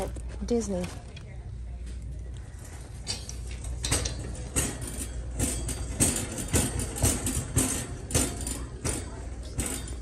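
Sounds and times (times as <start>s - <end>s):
wire basket rattling: 2.6s - 10.0s
cart wheels rumbling on hard floor: 3.9s - 10.0s.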